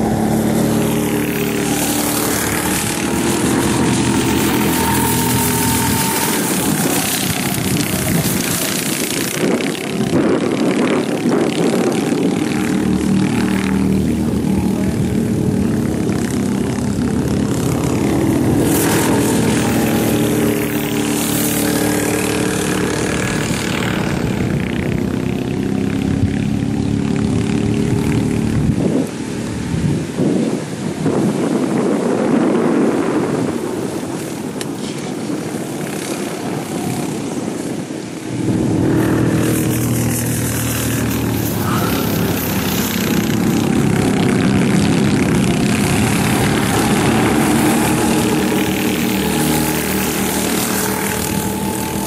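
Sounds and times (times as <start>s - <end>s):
go-kart engines buzzing: 0.0s - 52.0s.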